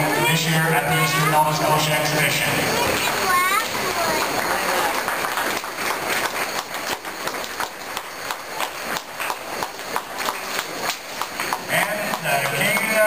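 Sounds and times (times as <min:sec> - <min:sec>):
horses trotting hoofbeats: 0:06.5 - 0:13.0.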